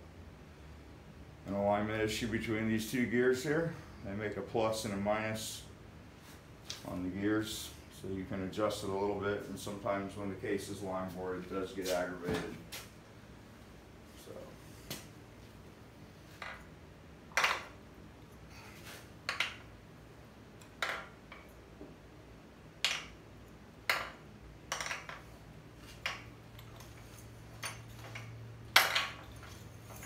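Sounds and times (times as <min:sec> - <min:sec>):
metallic gear clinks: 0:26.5 - 0:30.0.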